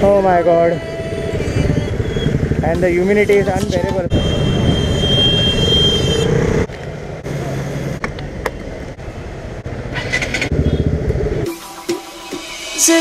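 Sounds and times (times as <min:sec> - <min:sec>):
motorcycle engine running: 0:00.0 - 0:05.0, 0:09.6 - 0:11.5
road noise: 0:00.0 - 0:13.0
steady high-pitched tone: 0:11.4 - 0:13.0.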